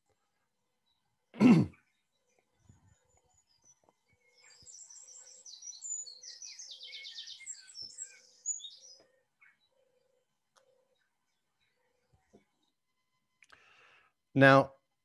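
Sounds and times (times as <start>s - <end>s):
wren singing trills: 1.7s - 13.5s.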